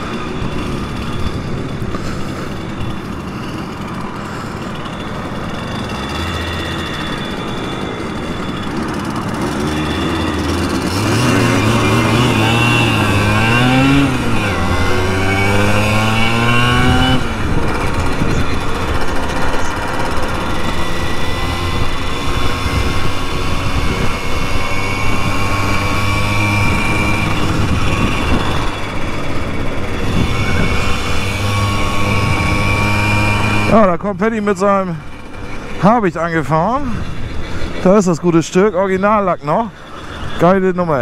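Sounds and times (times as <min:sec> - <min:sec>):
moped engine accelerating: 0:00.0 - 0:41.0.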